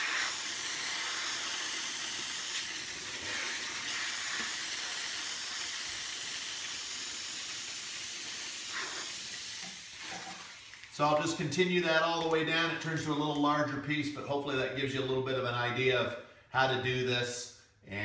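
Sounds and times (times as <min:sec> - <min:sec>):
steamer wand hissing: 0:00.0 - 0:11.1.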